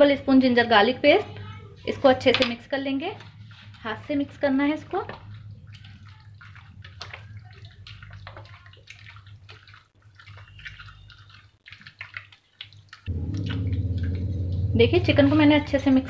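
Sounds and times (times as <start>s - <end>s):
wet squelches of hands mixing: 0.0s - 16.0s
low steady hum: 13.1s - 16.0s.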